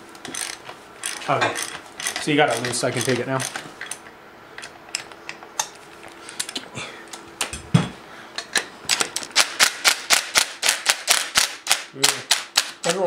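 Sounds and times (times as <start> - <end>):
ratchet wrench clicking: 0.3 - 4.0.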